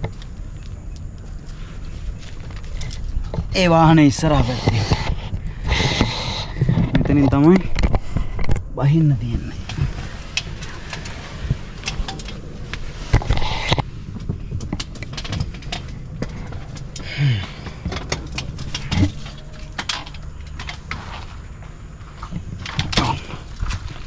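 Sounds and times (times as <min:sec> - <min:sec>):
low steady rumble: 0:00.0 - 0:24.0.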